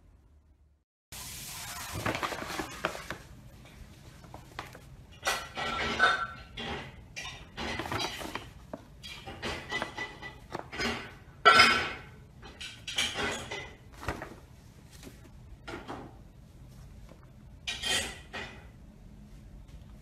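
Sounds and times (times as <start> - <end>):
paper bag crinkling: 1.6 - 3.4.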